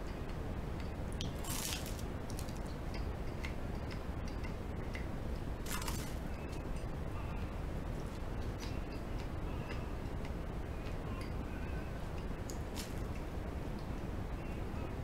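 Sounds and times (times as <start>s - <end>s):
steady low hum: 0.0s - 15.0s
biting into toast: 1.2s - 2.8s, 5.6s - 6.2s.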